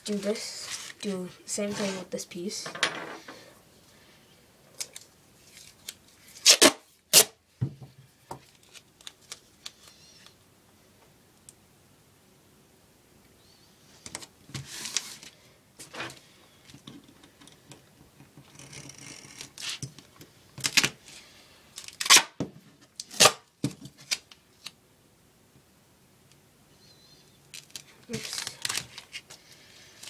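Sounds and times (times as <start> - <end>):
duct tape ripping off roll: 4.8 - 7.4, 18.6 - 19.9, 21.8 - 22.4, 23.0 - 24.3.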